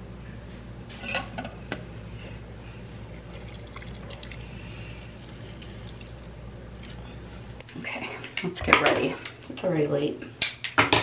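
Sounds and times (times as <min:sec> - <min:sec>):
juice dripping: 0:02.6 - 0:07.7.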